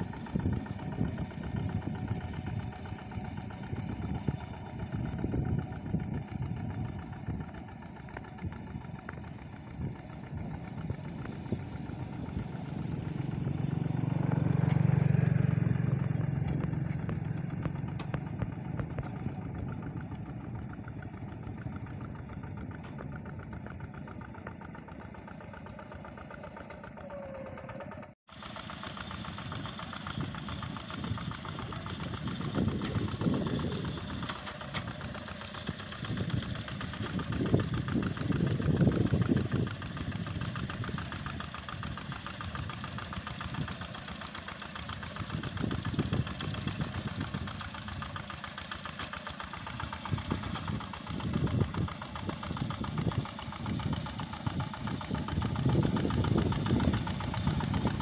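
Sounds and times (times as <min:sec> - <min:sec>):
diesel engine chugging: 0:00.0 - 0:58.0.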